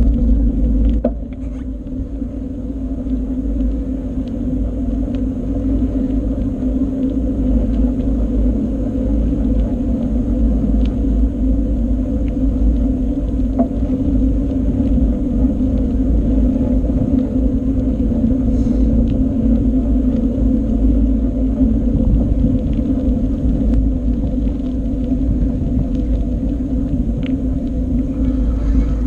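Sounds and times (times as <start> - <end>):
bicycle tyres rolling on road: 0.0 - 29.0
constant hum: 0.0 - 29.0
wind on microphone: 0.0 - 29.0.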